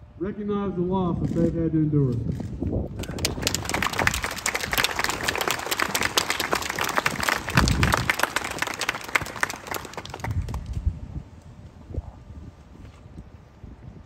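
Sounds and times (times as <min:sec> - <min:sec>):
crowd applauding: 0:03.0 - 0:10.8.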